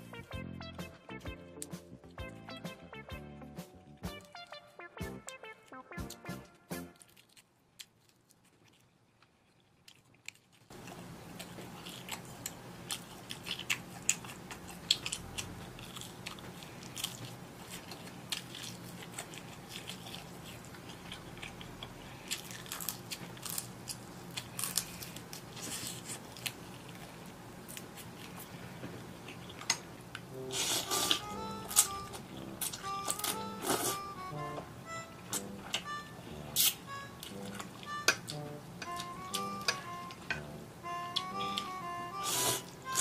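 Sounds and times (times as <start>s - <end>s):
person chewing crunchy food: 5.3s - 43.0s
low hum: 30.2s - 42.1s.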